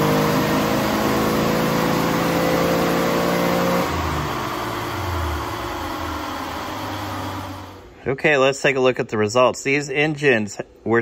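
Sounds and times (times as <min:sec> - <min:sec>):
engine revving under load: 0:00.0 - 0:07.9.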